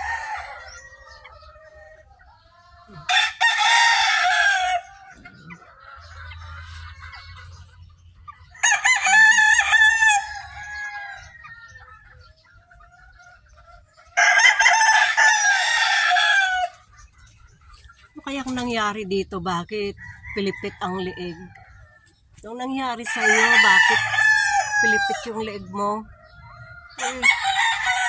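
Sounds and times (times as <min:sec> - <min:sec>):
rooster crowing: 0:00.0 - 0:01.3, 0:03.0 - 0:05.4, 0:08.6 - 0:11.8, 0:14.2 - 0:16.8, 0:19.9 - 0:21.9, 0:23.1 - 0:25.4, 0:26.5 - 0:28.0
chickens clucking softly: 0:00.0 - 0:28.0.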